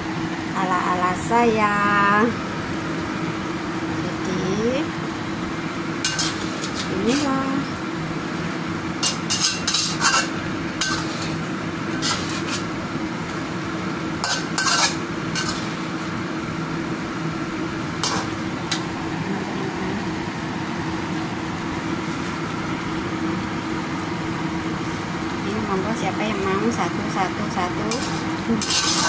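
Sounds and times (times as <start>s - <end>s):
steady low hum: 0.0s - 29.0s
metal spatula scraping wok: 6.0s - 7.3s, 9.0s - 12.7s, 14.2s - 16.1s, 18.0s - 18.4s, 27.8s - 29.0s.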